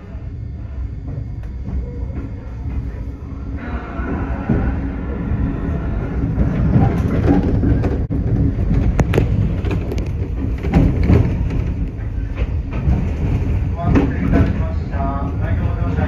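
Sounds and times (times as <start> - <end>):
train wheels rumbling on rail: 0.0 - 16.0.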